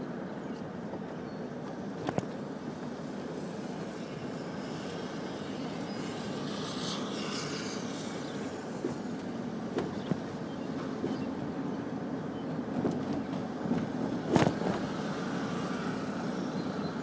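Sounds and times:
car road and engine rumble: 0.0s - 17.0s
hiss: 3.3s - 9.3s.

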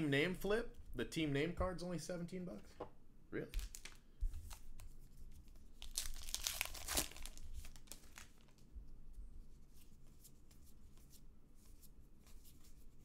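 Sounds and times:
wrapper crinkling and tearing: 3.5s - 4.6s, 5.7s - 8.6s.

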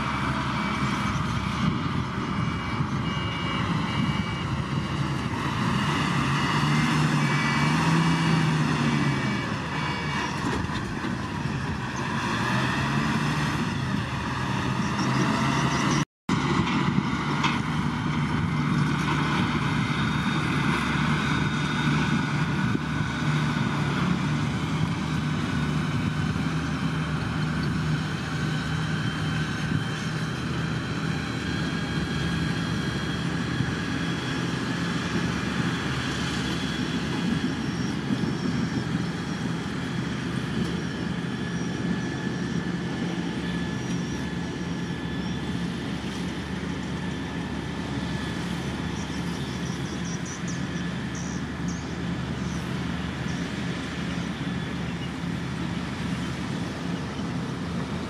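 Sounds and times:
bulldozer diesel engine under load: 0.0s - 58.0s
reversing alarm beeping: 0.1s - 5.3s.

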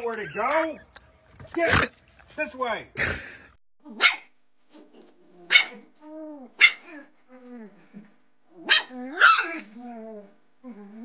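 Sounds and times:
small dog barking and yelping: 3.8s - 4.3s, 5.5s - 5.9s, 6.6s - 6.9s, 8.6s - 9.8s.

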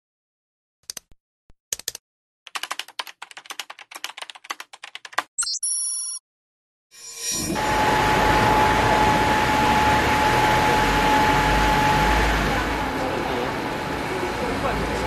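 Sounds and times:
sweeping electronic chirp: 5.4s - 6.2s, 7.0s - 11.6s
electronic chord tone: 7.0s - 12.8s.

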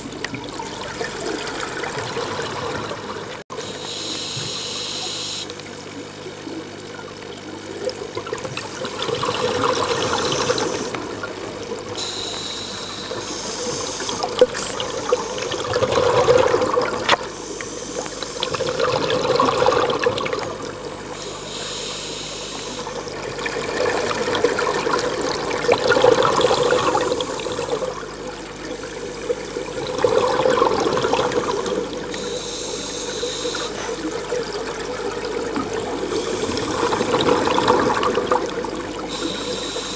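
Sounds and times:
exhaled air bubbling underwater: 0.0s - 39.9s
regulator inhale hiss: 12.0s - 15.7s, 17.4s - 18.5s, 21.2s - 22.9s, 32.2s - 34.0s, 36.1s - 36.9s, 39.1s - 39.9s.

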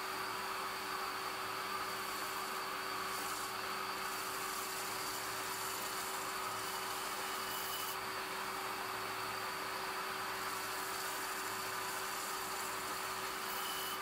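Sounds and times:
lathe motor hum: 1.7s - 9.3s
tool rasping wood: 3.0s - 8.0s, 11.9s - 14.0s.

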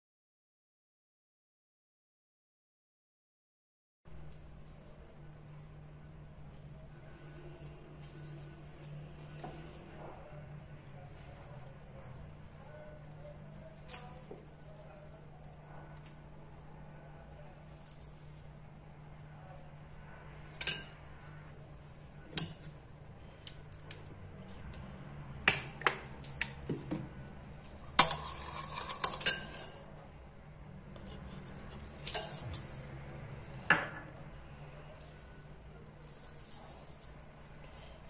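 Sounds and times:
faint low hum: 4.1s - 25.4s
metal spoon clinking on glass bowl: 20.6s - 21.0s, 22.4s - 22.7s, 28.0s - 29.8s.

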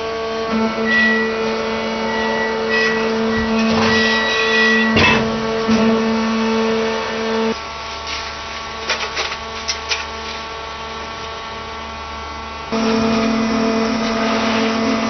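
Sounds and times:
machine hum: 0.0s - 15.0s
metallic clatter of scrap: 2.7s - 5.4s.

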